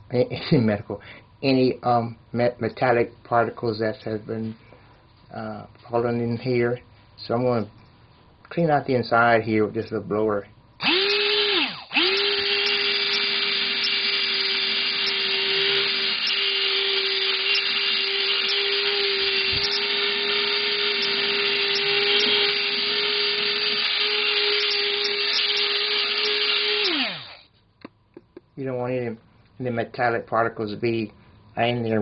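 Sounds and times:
electric blower motor whine: 10.8s - 27.4s.

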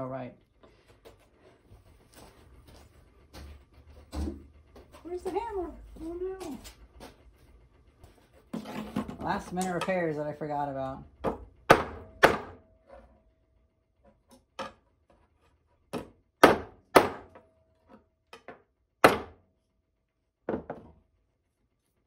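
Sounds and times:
hammer striking metal: 11.3s - 12.7s, 19.0s - 19.4s.

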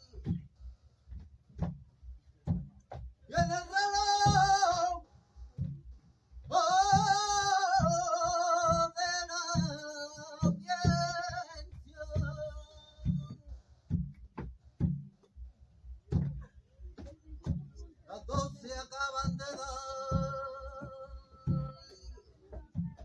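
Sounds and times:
low djembe strokes: 0.0s - 23.0s
man singing flamenco: 3.3s - 5.1s, 6.4s - 13.5s, 18.1s - 22.2s.

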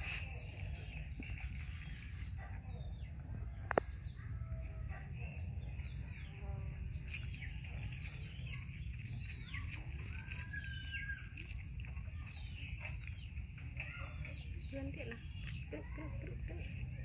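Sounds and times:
bird chirps and calls: 0.0s - 4.2s, 4.9s - 17.0s
steady high-pitched whine: 0.0s - 17.0s.

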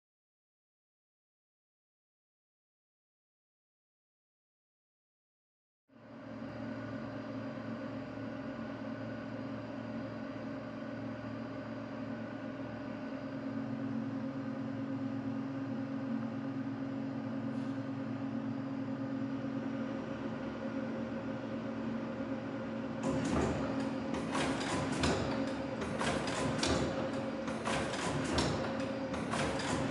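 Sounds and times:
loom motor hum: 6.0s - 29.9s
loom mechanical clacking: 23.0s - 29.9s.

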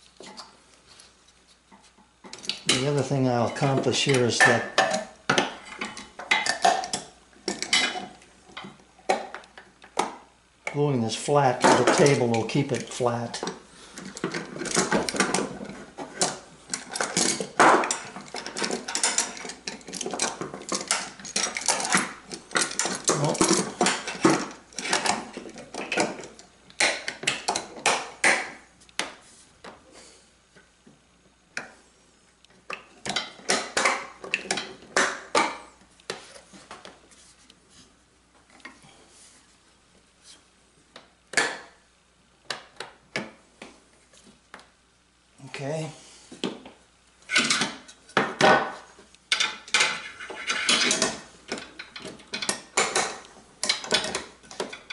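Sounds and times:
metal clamps clicking and clanking: 11.6s - 27.9s.

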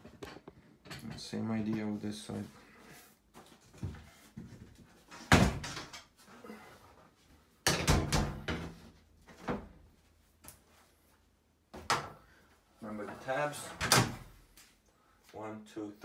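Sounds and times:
wall panel knocks and thuds: 3.8s - 6.0s, 7.6s - 9.8s.

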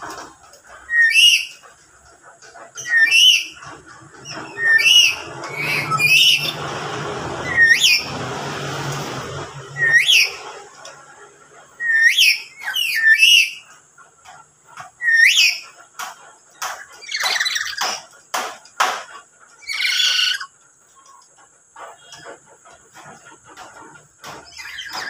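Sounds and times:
parrot whistles and screeches: 0.9s - 1.6s, 2.8s - 6.6s, 7.4s - 8.2s, 9.7s - 10.5s, 11.8s - 13.7s, 15.0s - 15.7s, 16.8s - 18.0s, 19.6s - 20.5s, 24.4s - 25.0s.

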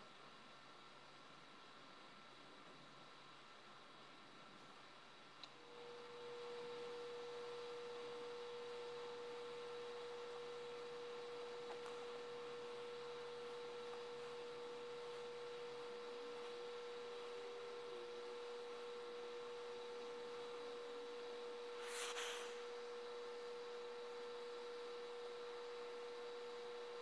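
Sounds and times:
steady pure tone: 5.7s - 26.8s
low hiss: 8.8s - 23.1s.

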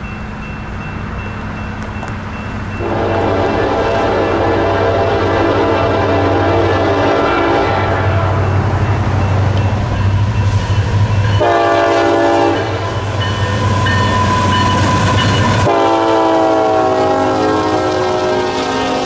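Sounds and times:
train clattering: 0.0s - 19.0s
locomotive air horn: 2.8s - 8.5s, 11.4s - 13.1s, 15.6s - 19.0s.

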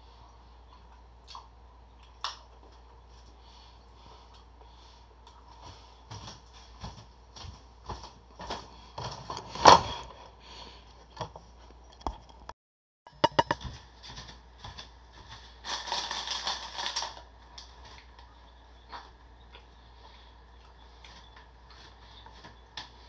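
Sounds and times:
handling clicks and knocks: 13.2s - 13.6s
plastic bread wrapper crinkling: 15.6s - 17.8s.

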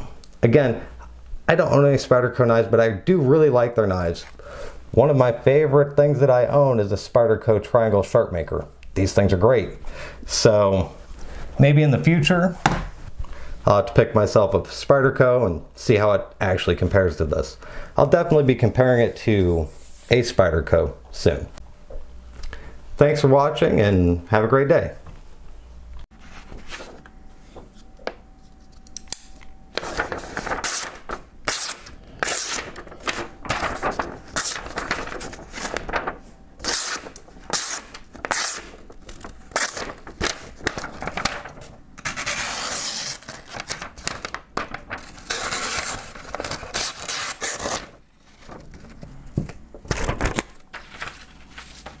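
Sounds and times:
knife slicing paper: 36.6s - 38.9s.

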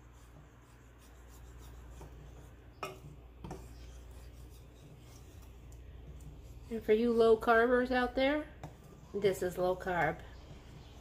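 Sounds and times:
wooden spoon scraping metal pot: 0.0s - 8.0s.

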